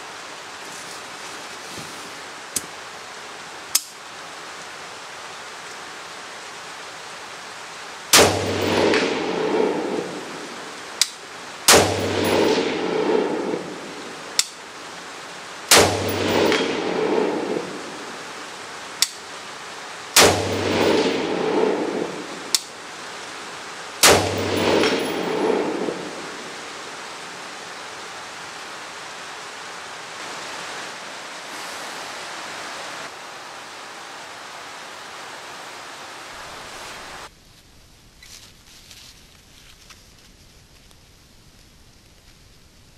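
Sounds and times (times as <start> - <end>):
rain falling: 0.0 - 42.9
rifle shots with echo: 8.2 - 10.2, 11.7 - 13.7, 15.7 - 17.7, 20.2 - 22.2, 24.0 - 26.2.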